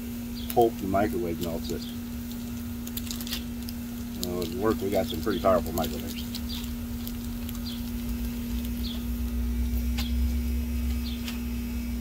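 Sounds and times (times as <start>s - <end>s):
constant low hum: 0.0s - 12.0s
food sizzling on griddle: 1.0s - 10.1s
bird chirps: 8.8s - 9.1s, 11.0s - 11.3s.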